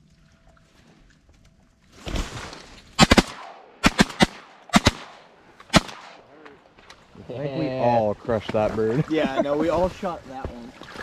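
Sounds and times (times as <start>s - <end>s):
shotgun shots: 3.0s - 6.2s.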